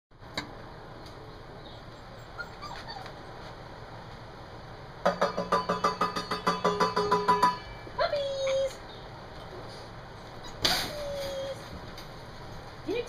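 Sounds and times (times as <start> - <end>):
puppy whimpers: 1.6 - 3.4, 10.4 - 11.5
strikes on a metal food tray: 5.1 - 7.8.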